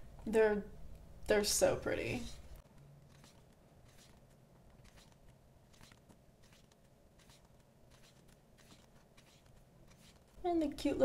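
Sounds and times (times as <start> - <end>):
pages being turned: 3.1 - 10.4.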